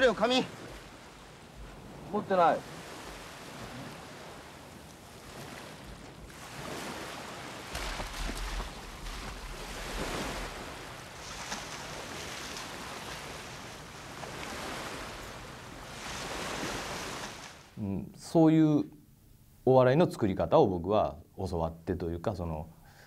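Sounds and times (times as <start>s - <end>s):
small waves washing on sand: 0.0s - 17.8s.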